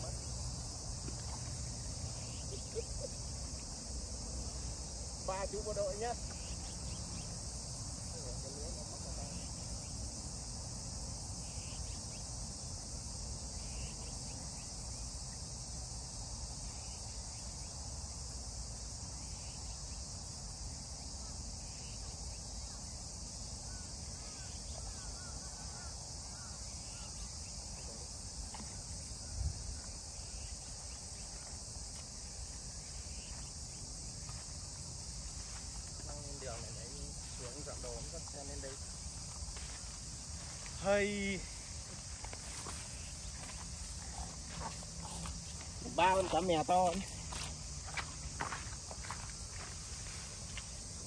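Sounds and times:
insects chirping: 0.0 - 51.0.

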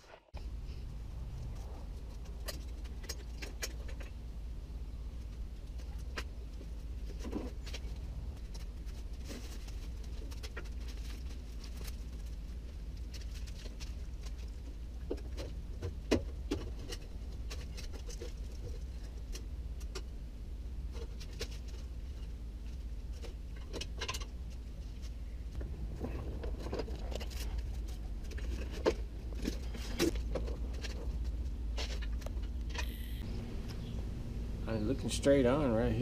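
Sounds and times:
steady low rumble: 0.2 - 36.0.

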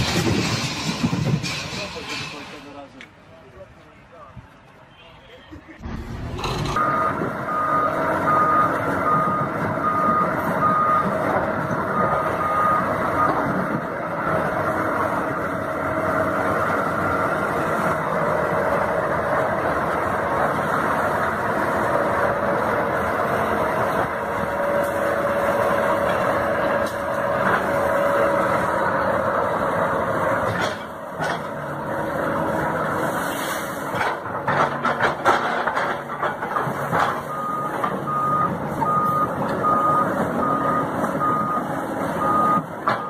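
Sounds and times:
excavator engine: 0.0 - 43.0
travel alarm beeping: 6.8 - 11.1, 37.3 - 42.6
knocks and clanks: 30.4 - 31.6, 33.8 - 38.1.

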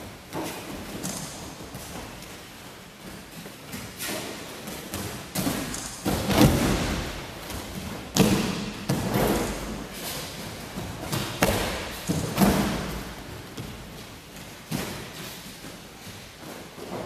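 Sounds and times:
running footfalls on mats: 0.0 - 17.0
bodies thudding on mats: 4.7 - 14.0.

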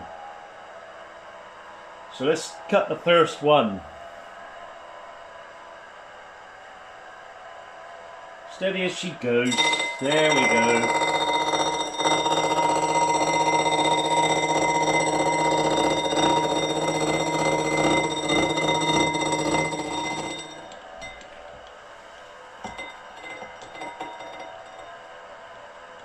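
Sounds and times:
milling machine cutting metal: 9.5 - 21.3.

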